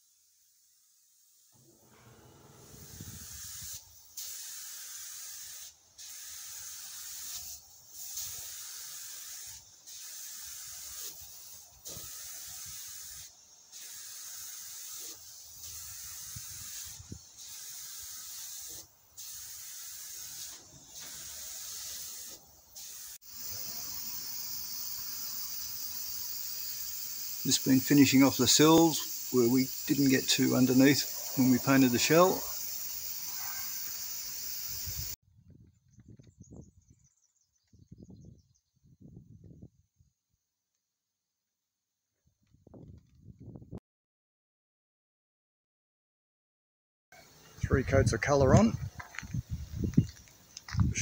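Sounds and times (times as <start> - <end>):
paint spray gun hissing: 0.1 - 35.2
wind rumble on microphone: 2.6 - 3.4, 34.9 - 39.8, 42.5 - 43.8, 47.6 - 51.0.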